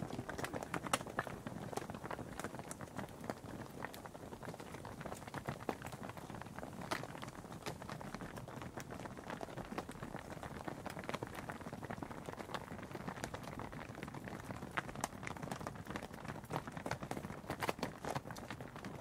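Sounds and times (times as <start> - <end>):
cattle hooves clopping on tarmac: 0.0 - 19.0.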